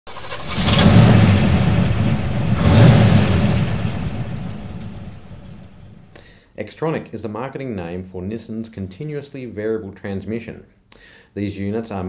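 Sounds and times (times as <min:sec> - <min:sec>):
car engine revving: 0:00.1 - 0:06.1.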